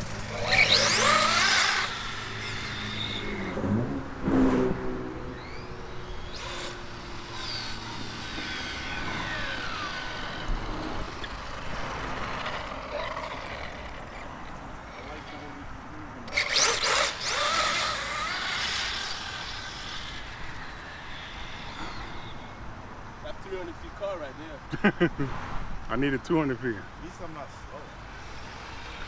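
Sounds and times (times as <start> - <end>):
electric toy car motor whining: 0.0 - 3.7, 5.3 - 15.6, 16.2 - 22.6, 28.0 - 29.0.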